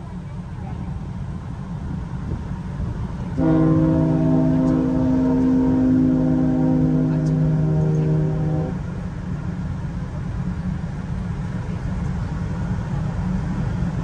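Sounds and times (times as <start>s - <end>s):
low rumble: 3.0s - 9.7s
ship horn blast: 3.3s - 9.0s.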